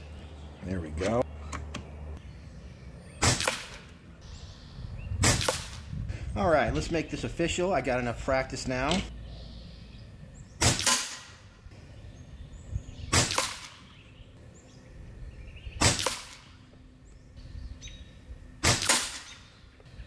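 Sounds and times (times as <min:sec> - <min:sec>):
air rifle shots echoing: 0:03.2 - 0:04.0, 0:05.2 - 0:05.9, 0:10.6 - 0:11.5, 0:13.1 - 0:13.9, 0:15.8 - 0:16.6, 0:18.6 - 0:19.6.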